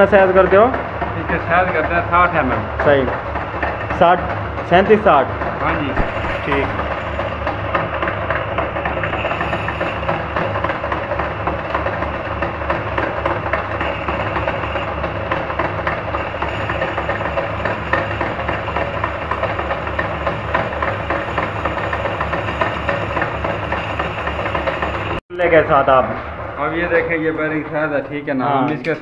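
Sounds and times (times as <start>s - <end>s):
metal lathe running: 0.0s - 25.2s
cutting tool boring metal: 4.8s - 25.2s.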